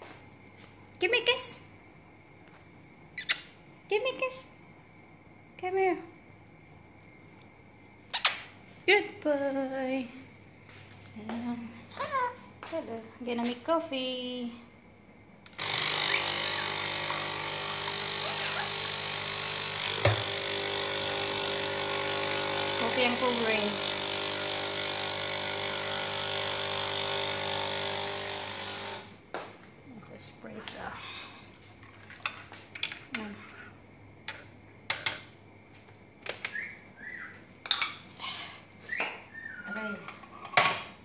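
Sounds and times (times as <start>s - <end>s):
espresso machine pump buzzing: 15.5s - 29.2s.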